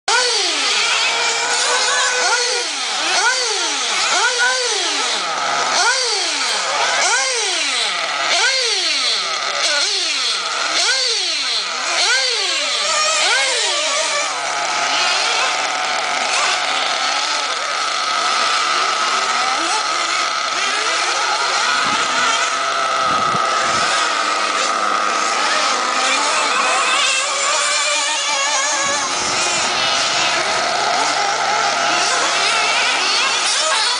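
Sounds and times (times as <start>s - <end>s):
model car motor revving: 0.1s - 33.9s.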